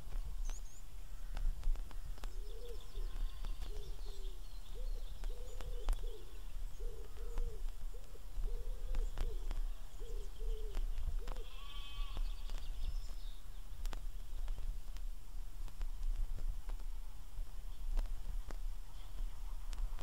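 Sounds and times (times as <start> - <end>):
small birds calling faintly: 0.0 - 20.0
vinyl record clicks: 1.3 - 4.2, 5.0 - 6.1, 7.0 - 11.5, 12.1 - 17.0, 17.8 - 20.0
sheep and lambs bleating: 3.0 - 3.7, 11.4 - 12.5.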